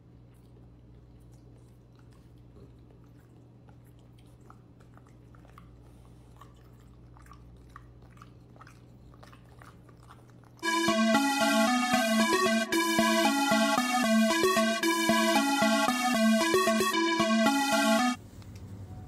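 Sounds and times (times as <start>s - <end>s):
dog chewing: 0.4s - 10.6s.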